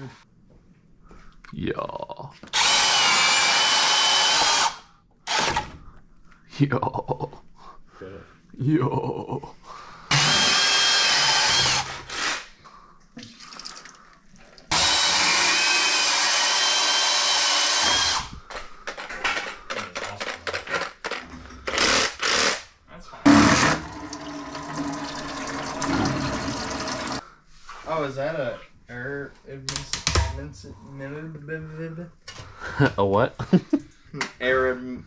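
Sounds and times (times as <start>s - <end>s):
bandsaw cutting: 10.1s - 12.5s, 14.7s - 18.3s, 23.3s - 27.2s.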